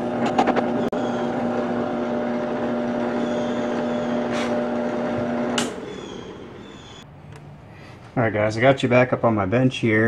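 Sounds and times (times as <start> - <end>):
drill press humming: 0.0 - 7.0.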